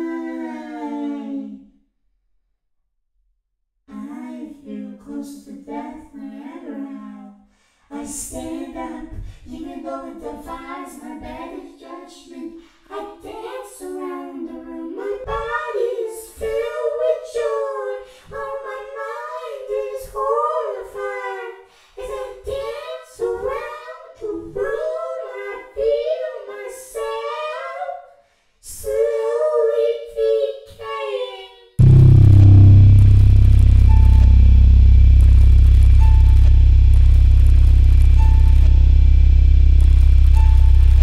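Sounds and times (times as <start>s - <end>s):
high voice singing held notes: 31.8s - 41.0s.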